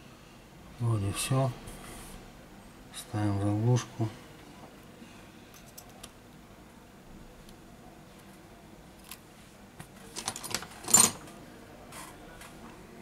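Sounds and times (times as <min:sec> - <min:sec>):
small parts clicking and rattling: 0:05.5 - 0:06.1, 0:10.1 - 0:11.2.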